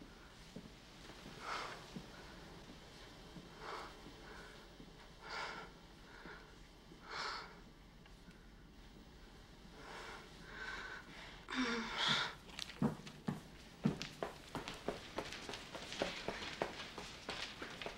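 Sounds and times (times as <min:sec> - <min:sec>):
woman gasping: 0:10.6 - 0:12.4
quick footsteps: 0:12.4 - 0:17.9.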